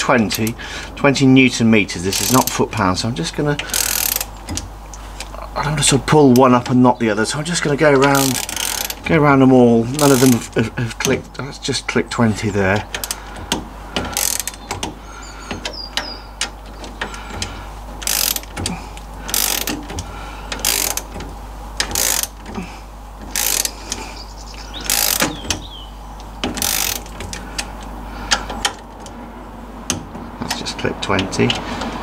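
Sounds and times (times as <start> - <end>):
ratchet wrench clicking: 2.1 - 2.6, 3.6 - 4.7, 8.0 - 9.0, 13.0 - 14.9, 18.0 - 22.6, 23.2 - 24.0, 24.8 - 25.6, 26.4 - 27.7.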